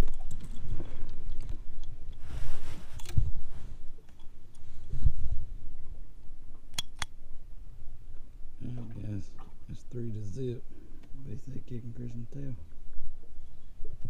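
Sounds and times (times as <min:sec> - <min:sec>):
rustling in metal boat: 0:00.0 - 0:05.6
sharp click: 0:06.7 - 0:07.2.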